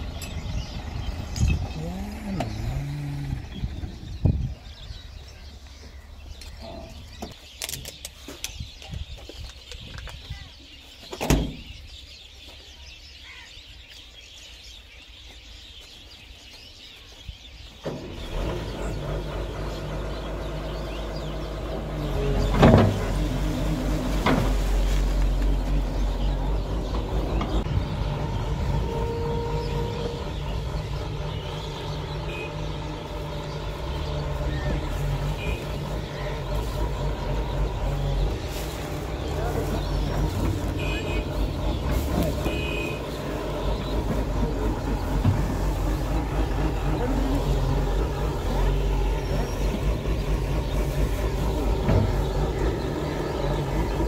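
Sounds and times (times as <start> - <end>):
excavator diesel engine running: 0.0 - 7.2, 17.8 - 54.0
bird calls: 0.0 - 54.0.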